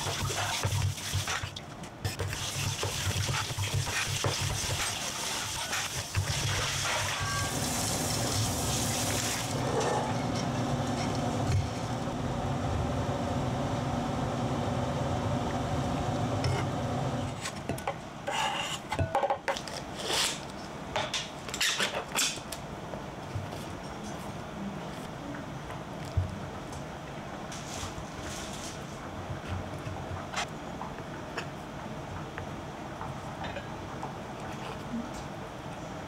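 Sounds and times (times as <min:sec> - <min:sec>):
pot of water boiling: 0:02.4 - 0:17.2.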